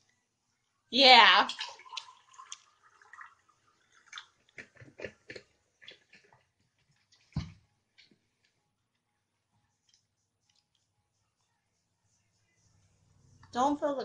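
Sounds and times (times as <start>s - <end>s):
juice pouring into a cup: 1.5s - 7.3s
plastic bottles clicking and knocking: 4.4s - 7.6s.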